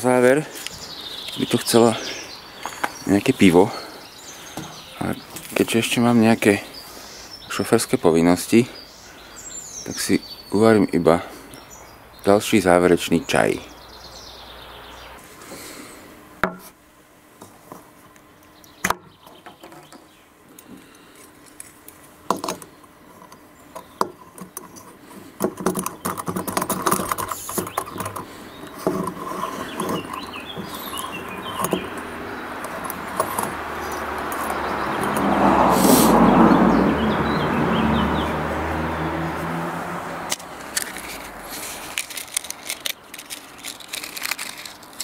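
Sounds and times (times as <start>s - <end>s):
metal clicks and knocks: 22.3s - 35.2s
rushing noise: 34.1s - 40.4s.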